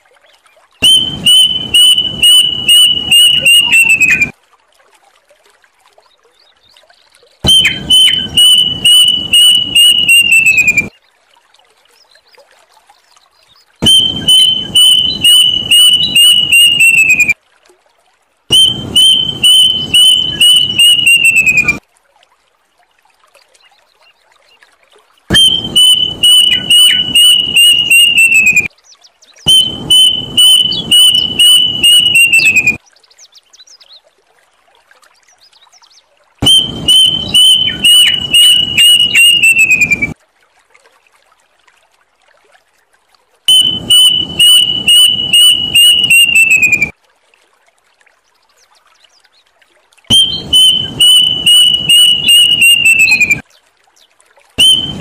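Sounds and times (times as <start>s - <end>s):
cuckoo calling: 0.8s - 4.3s, 7.4s - 10.9s, 13.8s - 17.4s, 18.5s - 21.8s, 25.3s - 28.7s, 29.5s - 32.8s, 36.4s - 40.2s, 43.5s - 46.9s, 50.1s - 53.4s, 54.6s - 55.0s.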